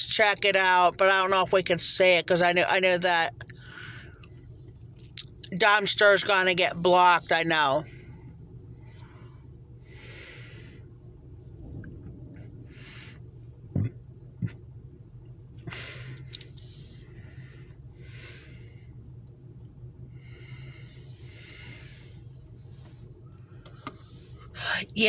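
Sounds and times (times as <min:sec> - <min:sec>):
low steady hum: 0:00.0 - 0:25.0
person breathing: 0:03.6 - 0:04.2, 0:07.9 - 0:11.0, 0:12.5 - 0:13.5, 0:15.7 - 0:19.0, 0:20.1 - 0:22.3.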